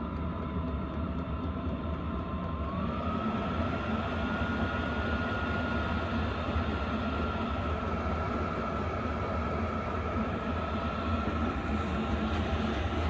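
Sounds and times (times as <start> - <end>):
air heater hum and blower rush: 0.0 - 13.0
thin whine: 2.2 - 13.0.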